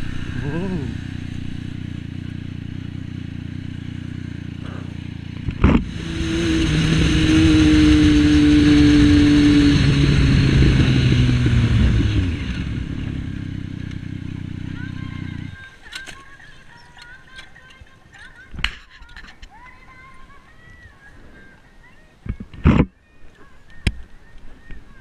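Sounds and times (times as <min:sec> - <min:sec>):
motorcycle engine revving: 0:00.0 - 0:17.4.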